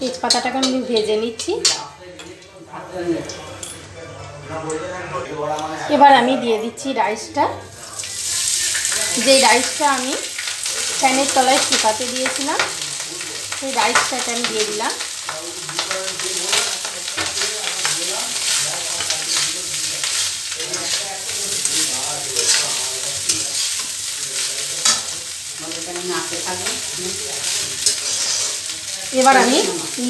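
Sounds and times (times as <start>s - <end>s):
light sizzle: 7.6s - 30.0s
metal spatula scraping pan: 17.1s - 30.0s.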